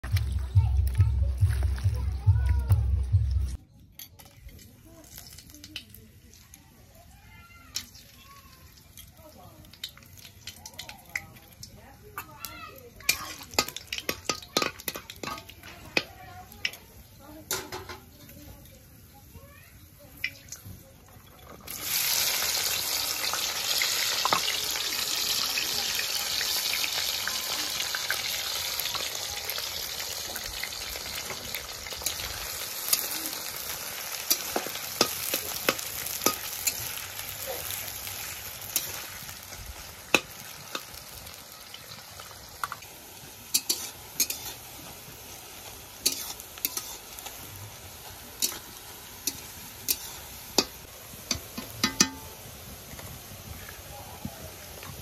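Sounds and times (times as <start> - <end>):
onions sizzling in hot oil: 4.2 - 55.0
metal spatula scraping pan: 43.5 - 44.6, 46.0 - 47.2, 48.4 - 50.7.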